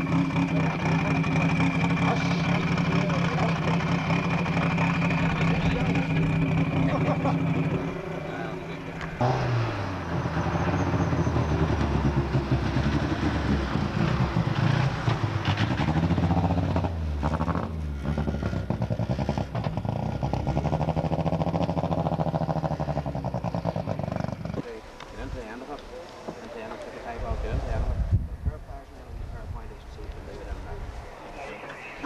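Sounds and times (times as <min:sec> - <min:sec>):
rally car engine revving: 0:00.0 - 0:24.8.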